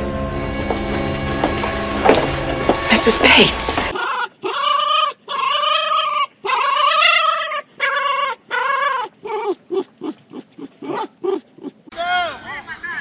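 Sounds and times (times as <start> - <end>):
fox whining: 3.9 - 12.4
fox yipping: 3.9 - 12.4.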